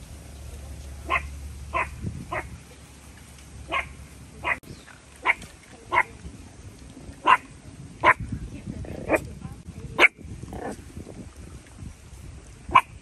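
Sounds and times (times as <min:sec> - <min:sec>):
dog barking: 0:01.1 - 0:02.5, 0:03.7 - 0:04.6, 0:07.2 - 0:07.4.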